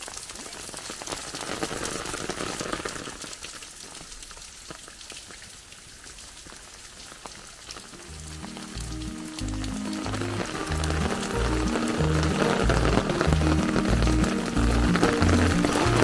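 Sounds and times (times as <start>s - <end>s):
rain pattering: 0.0s - 16.0s
music: 7.9s - 16.0s.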